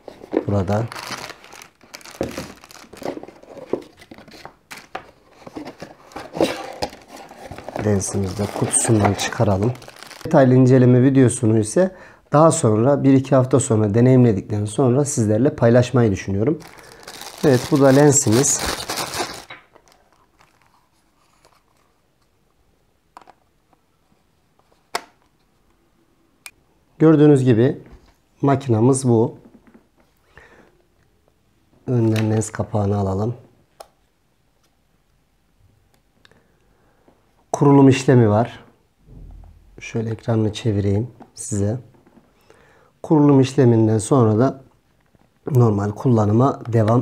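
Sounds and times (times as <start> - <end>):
cardboard box rustling and crinkling: 0.0 - 10.3, 16.6 - 20.7.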